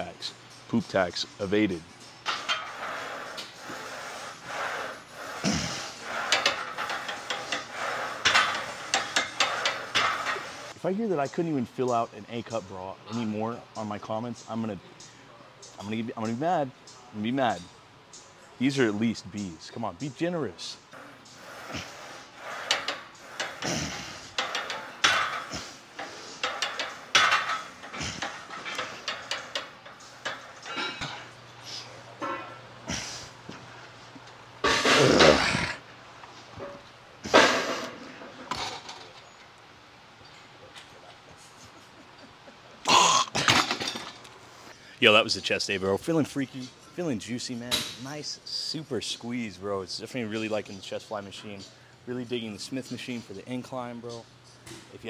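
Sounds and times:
hard rhythmic breathing: 2.4s - 10.8s, 21.0s - 32.1s
weight plates clicking and clanking: 24.3s - 31.3s.

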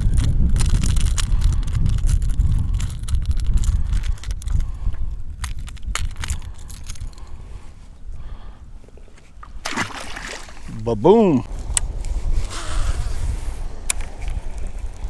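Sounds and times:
wind rumbling on microphone: 0.0s - 15.0s
fishing lure clicking and rattling: 0.6s - 4.6s.

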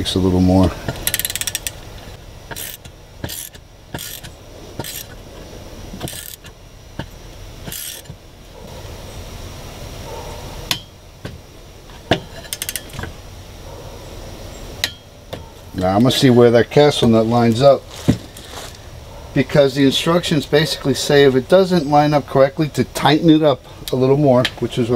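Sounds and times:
torque wrench ratchet clicks: 0.9s - 1.8s, 2.5s - 5.2s, 6.0s - 8.2s, 12.5s - 13.1s.

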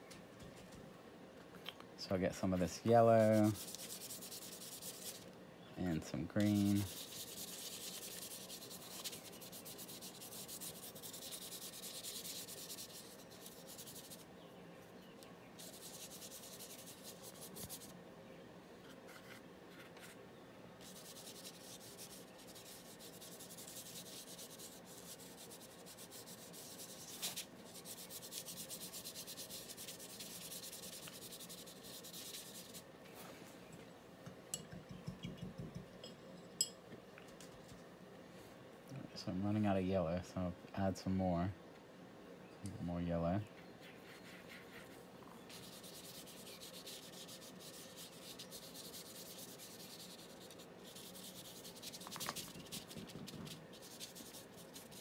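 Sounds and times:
paintbrush scrubbing on paper: 2.7s - 5.2s, 6.4s - 14.3s, 15.6s - 17.9s, 20.8s - 32.8s, 43.8s - 55.0s.

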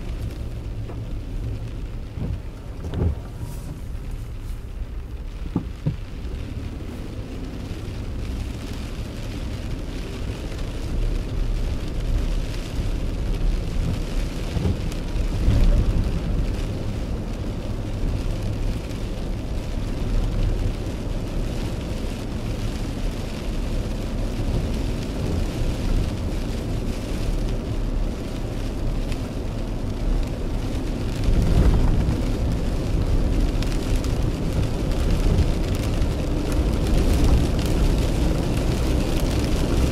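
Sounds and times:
car driving on wet road: 0.0s - 39.9s
rain on car windshield and roof: 0.0s - 39.9s.

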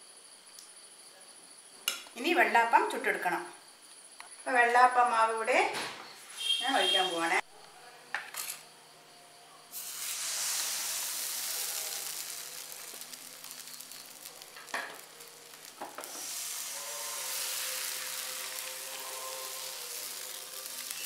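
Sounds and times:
batter sizzling in a pan: 9.7s - 21.0s.

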